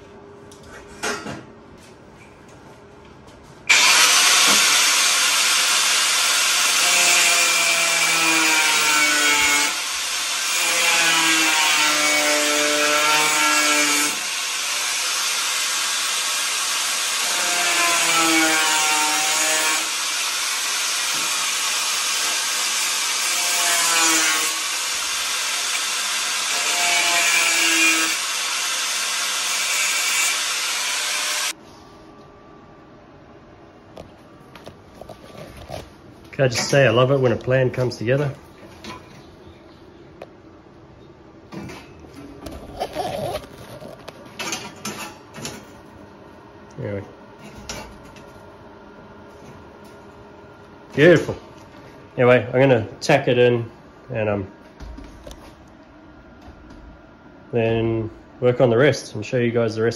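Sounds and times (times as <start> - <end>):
angle grinder cutting steel: 3.7 - 31.6.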